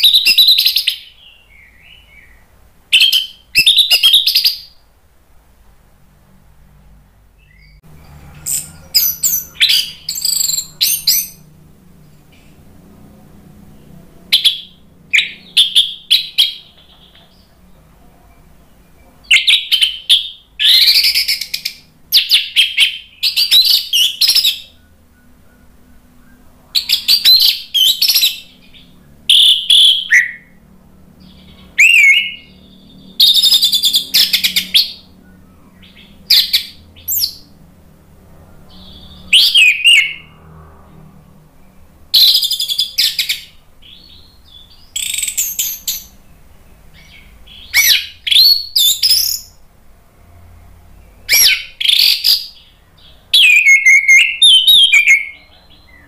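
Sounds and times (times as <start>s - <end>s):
thrush singing: 7.4s - 49.6s.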